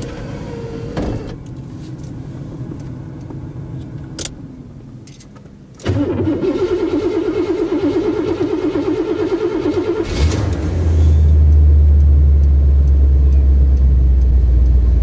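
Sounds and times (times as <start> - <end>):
car engine rumbling: 0.0 - 15.0
car starter cranking: 5.8 - 11.6.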